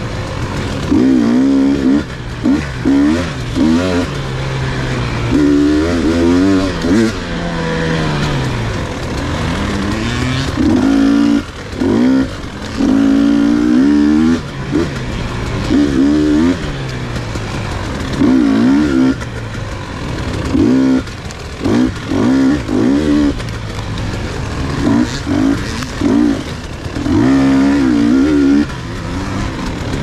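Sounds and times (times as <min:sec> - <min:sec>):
dirt bike engine revving: 0:00.0 - 0:30.0.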